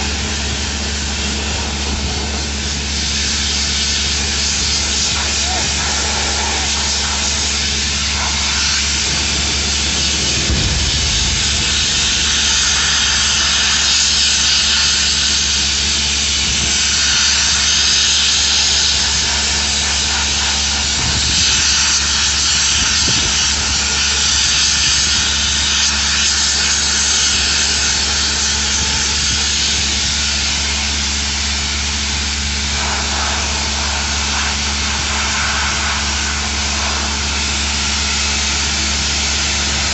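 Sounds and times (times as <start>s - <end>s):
low machinery hum: 0.0s - 39.9s
machinery hissing: 0.0s - 39.9s
low thuds: 9.0s - 14.0s.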